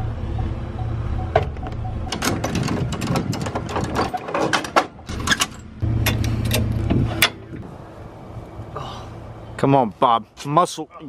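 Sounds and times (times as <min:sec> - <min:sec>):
truck engine idling: 0:00.0 - 0:09.6
metal chain clanking: 0:02.0 - 0:07.4.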